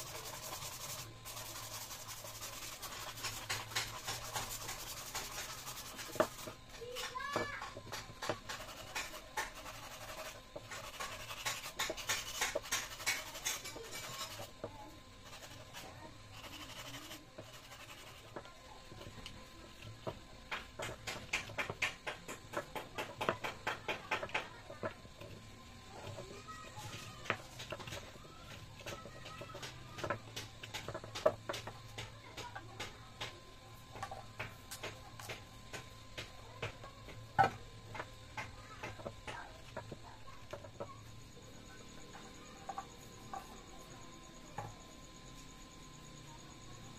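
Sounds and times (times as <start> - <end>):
sandpaper rasping on wood: 0.0 - 6.6, 8.2 - 14.5, 15.2 - 18.4
knife whittling wood: 0.0 - 33.3.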